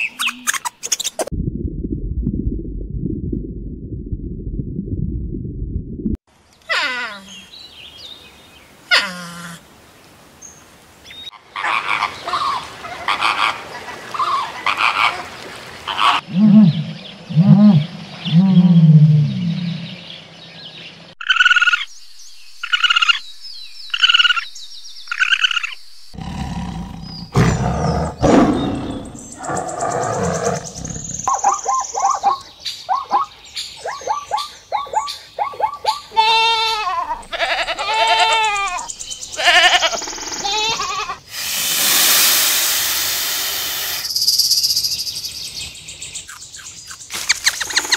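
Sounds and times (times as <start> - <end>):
flamingos calling: 11.5 - 15.3
goat kids bleating: 36.2 - 38.8.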